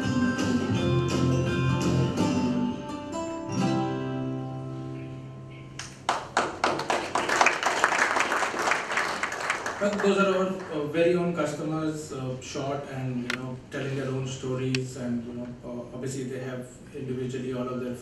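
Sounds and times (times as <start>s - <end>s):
plucked guitar music: 0.0s - 5.8s
audience applauding: 5.8s - 10.8s.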